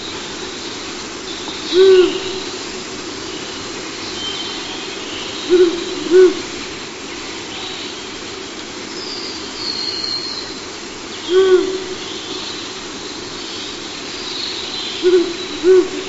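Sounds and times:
owl hooting: 1.6 - 2.6, 5.2 - 6.6, 11.3 - 12.4, 15.0 - 16.0.

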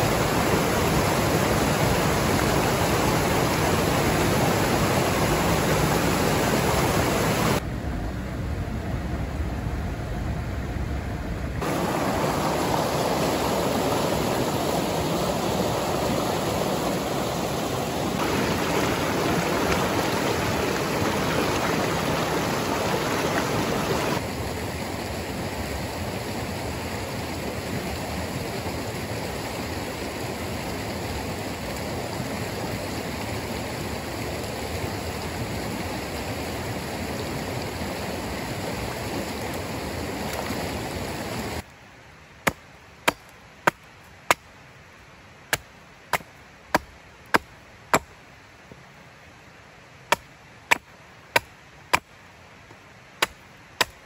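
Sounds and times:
stream water rushing: 0.0 - 7.7, 11.5 - 54.0
chopping strikes on wood: 42.4 - 44.5, 45.5 - 48.1, 50.1 - 52.1, 53.2 - 54.0.

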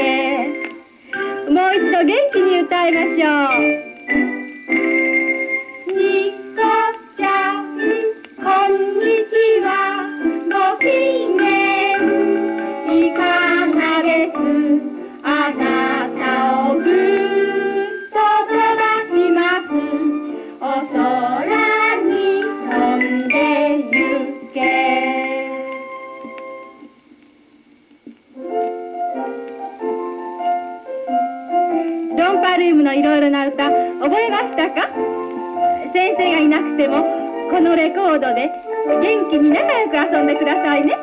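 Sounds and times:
children's choir singing: 0.0 - 0.6, 5.8 - 25.8
woman singing children's song: 0.0 - 3.8, 5.9 - 25.8, 32.1 - 35.0, 35.8 - 41.0
piano accompaniment: 0.0 - 41.0.

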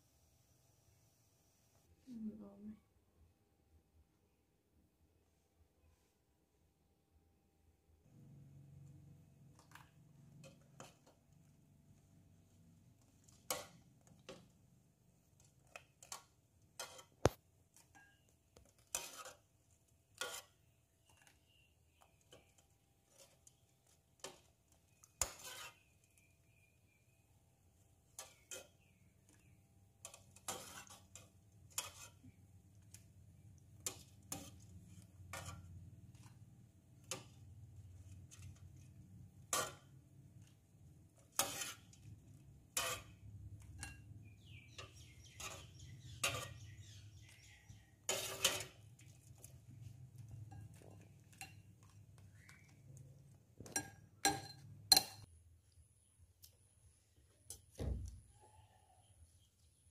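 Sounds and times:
metal ladle clinking on pot: 53.6 - 55.3.

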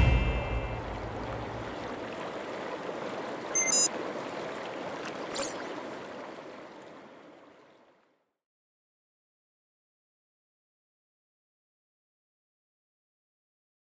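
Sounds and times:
high glittering sound: 0.0 - 1.2.

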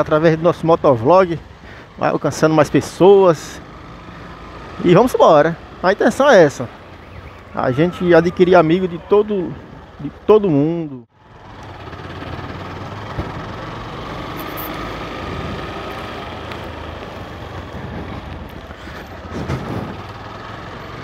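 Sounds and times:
road and wind noise: 0.0 - 21.0
motorcycle engine running: 11.2 - 21.0.

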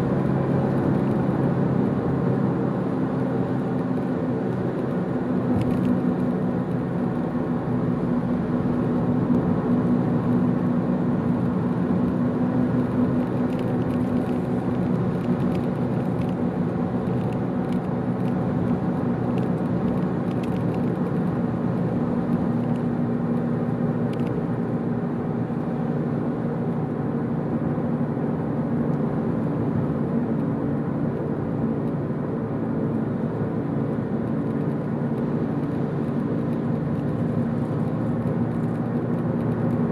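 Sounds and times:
car engine hum: 0.0 - 39.9.

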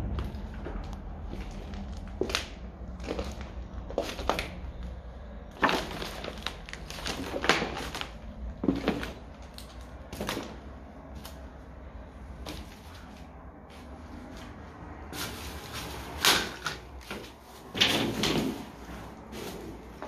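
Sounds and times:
footsteps crunching over debris: 0.0 - 4.6, 5.5 - 11.4.

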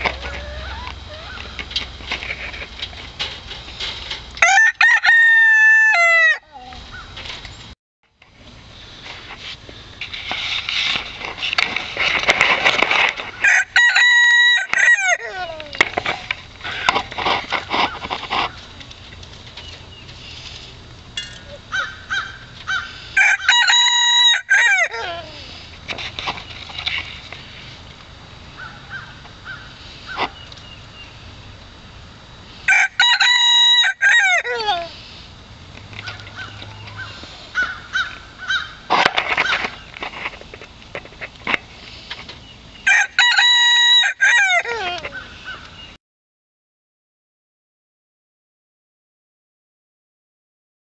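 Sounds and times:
chickens clucking: 0.0 - 1.8
rooster crowing: 0.2 - 1.4, 4.4 - 6.4, 13.4 - 15.4, 21.8 - 25.1, 32.7 - 34.7, 42.9 - 45.0.

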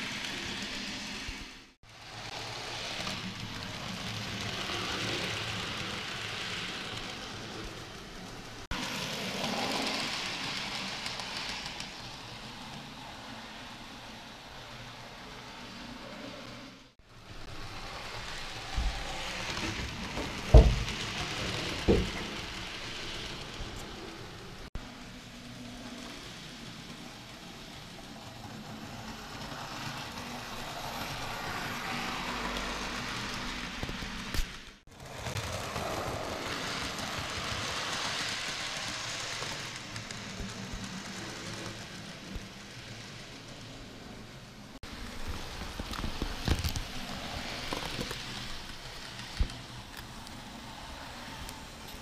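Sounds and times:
model train wheels rattling: 17.5 - 52.0
clicks over rail joints: 18.8 - 22.9.

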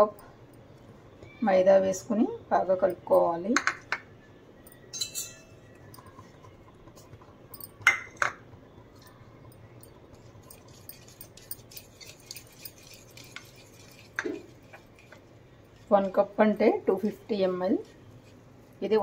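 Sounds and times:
whisk ticking in batter: 10.1 - 17.2
utensils clinking on plastic bowl: 10.3 - 15.2.

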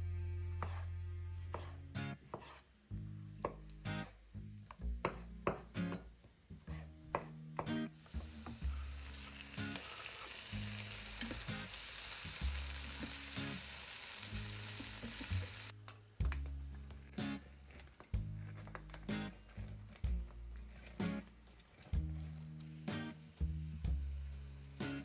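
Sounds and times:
knife chopping on wooden board: 0.6 - 0.8, 1.5 - 2.6, 5.0 - 6.1, 6.7 - 7.8
vegetables sizzling in a frying pan: 8.0 - 15.8, 22.7 - 25.0
wooden spatula stirring: 17.6 - 22.5.

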